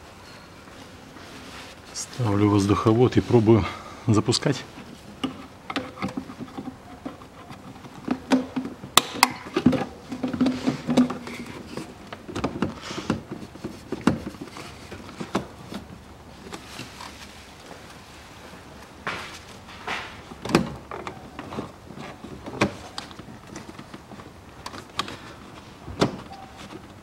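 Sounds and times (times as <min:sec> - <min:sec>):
plastic duct clicks and knocks: 0:05.1 - 0:15.9
short squeaky rub: 0:26.3 - 0:26.7.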